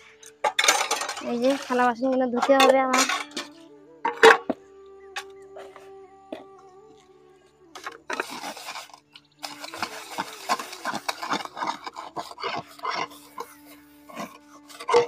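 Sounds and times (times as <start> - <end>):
scouring steel plate with ash: 7.8 - 15.0.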